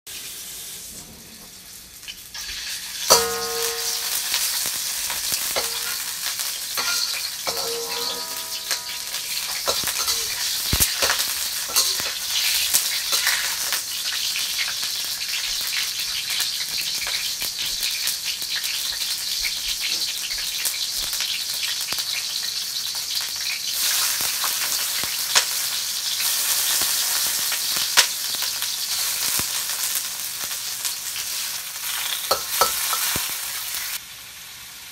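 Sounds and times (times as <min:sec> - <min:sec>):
food sizzling in frying pan: 0:00.1 - 0:34.9
utensil clinking against pan: 0:03.1 - 0:04.5, 0:05.5 - 0:06.1, 0:06.8 - 0:12.2, 0:32.3 - 0:33.1.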